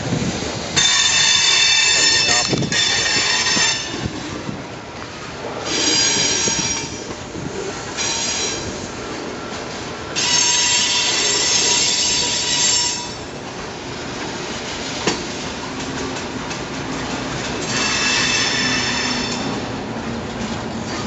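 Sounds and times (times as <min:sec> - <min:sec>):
rumble of rolling train cars: 0:00.0 - 0:21.0
train wheels squealing: 0:05.7 - 0:07.1, 0:10.2 - 0:13.2, 0:17.6 - 0:19.6.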